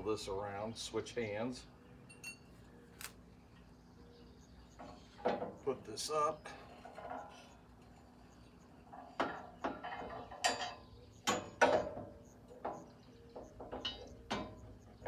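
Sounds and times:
metal clanks and knocks: 0:04.8 - 0:05.6, 0:06.7 - 0:07.6, 0:08.9 - 0:14.7.

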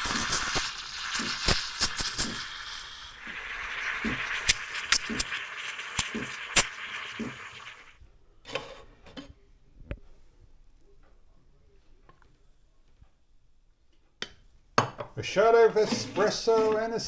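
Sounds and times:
steam wand hissing in milk: 0:00.0 - 0:08.0.

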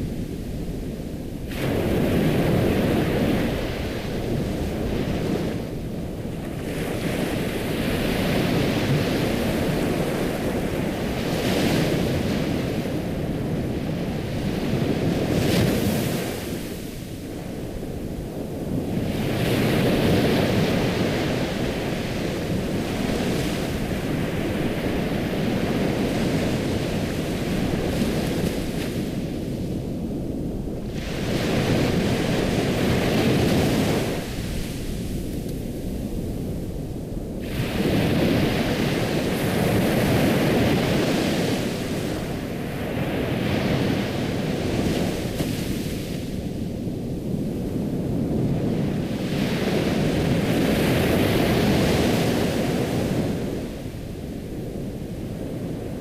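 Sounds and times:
ocean waves washing in and out: 0:00.0 - 0:56.0.

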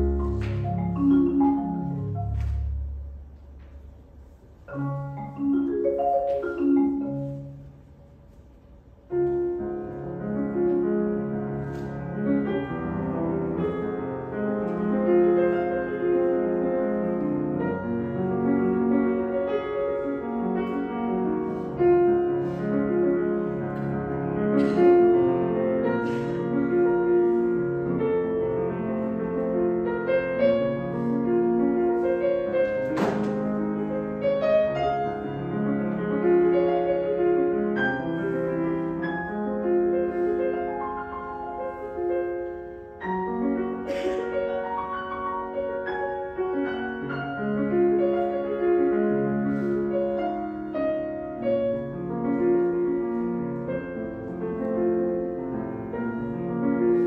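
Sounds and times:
marimba notes: 0:00.0 - 0:03.3, 0:04.7 - 0:07.8
piano playing: 0:00.0 - 0:57.0.

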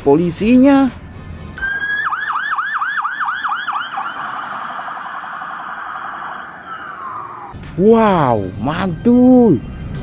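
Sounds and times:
electronic police siren: 0:01.6 - 0:07.6.

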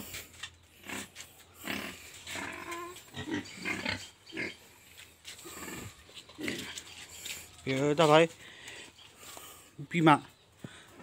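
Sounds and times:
young pigs grunting: 0:00.7 - 0:07.5.

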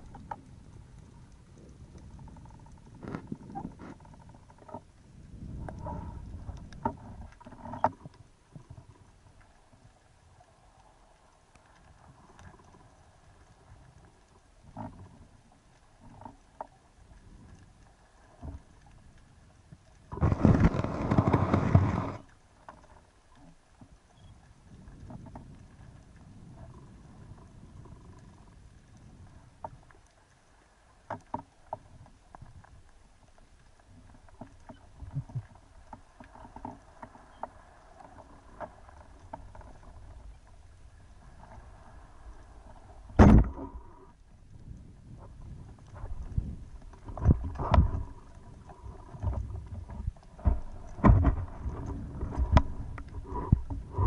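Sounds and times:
faint underwater clicks: 0:00.0 - 0:54.0
speargun thump underwater: 0:43.2 - 0:43.8.

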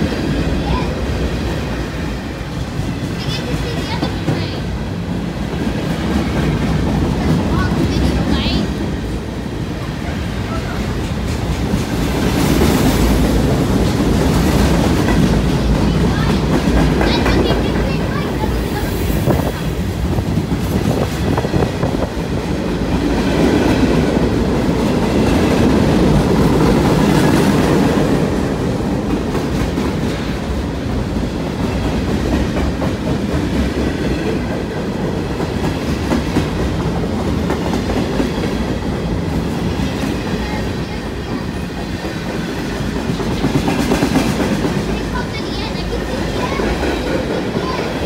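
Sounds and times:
train wheels rumbling on rails: 0:00.0 - 0:48.0
rapid clickety-clack: 0:10.6 - 0:48.0.

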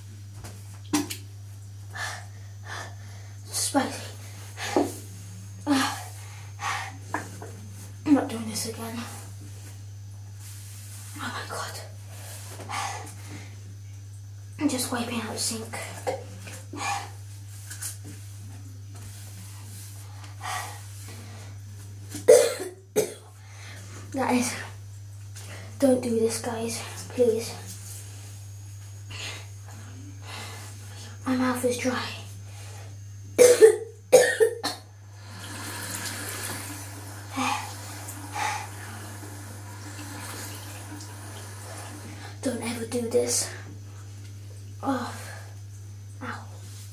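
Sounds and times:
steady hiss: 0:00.0 - 0:46.9
steady low hum: 0:00.0 - 0:46.9
person coughing hard: 0:22.3 - 0:23.3, 0:33.4 - 0:34.8.

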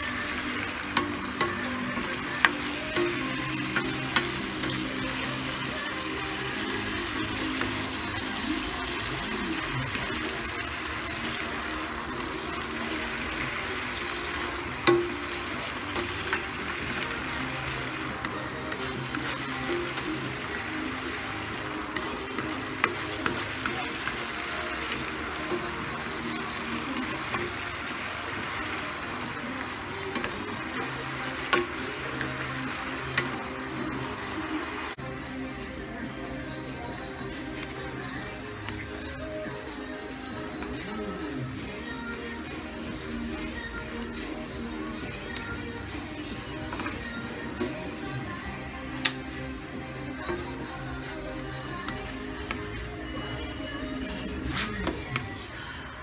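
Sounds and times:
sauce bubbling and sizzling in pan: 0:00.0 - 0:40.9
soft background music: 0:00.0 - 0:56.0.

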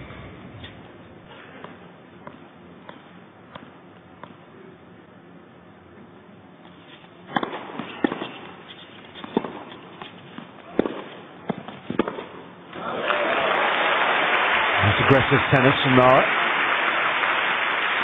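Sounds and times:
racket hitting tennis ball: 0:06.9 - 0:12.5
crowd applauding: 0:12.7 - 0:18.0.

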